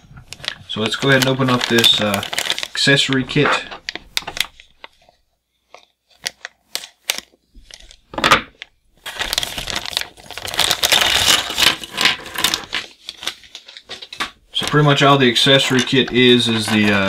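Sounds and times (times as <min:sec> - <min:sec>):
plastic bag crinkling: 0:00.0 - 0:17.0
plastic bag tearing: 0:00.3 - 0:04.9, 0:09.0 - 0:17.0.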